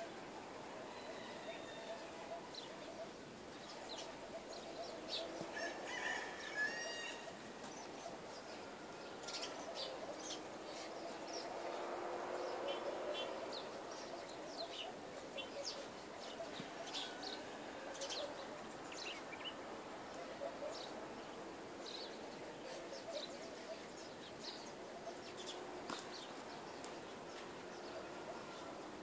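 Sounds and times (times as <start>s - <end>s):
background hiss: 0.0s - 29.0s
small birds chirping: 7.1s - 29.0s.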